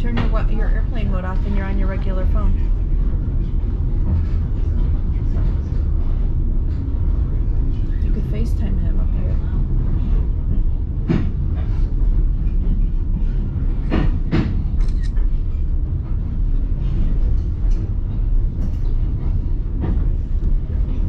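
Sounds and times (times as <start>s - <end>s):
train rumbling on track: 0.0s - 21.0s
sharp track clacks: 12.4s - 21.0s.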